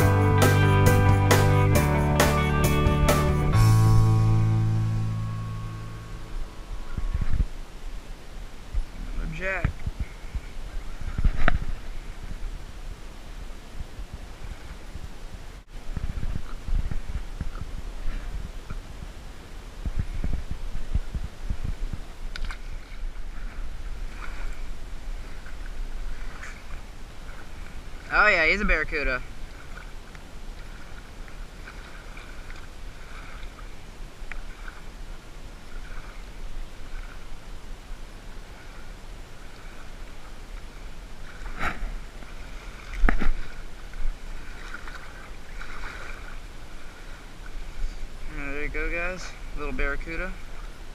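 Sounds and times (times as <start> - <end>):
low thumps: 0.0 - 7.8
wind rumbling on microphone: 3.5 - 50.9.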